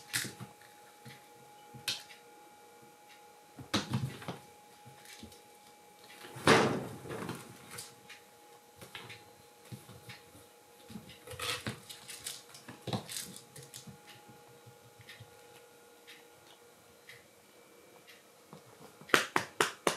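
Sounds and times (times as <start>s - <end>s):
loud thump: 6.4s - 7.3s.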